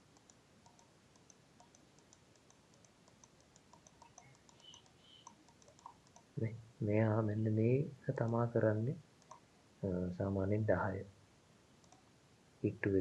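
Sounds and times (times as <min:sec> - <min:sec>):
faint computer mouse clicks: 0:00.0 - 0:06.3, 0:09.2 - 0:09.5, 0:11.8 - 0:12.1.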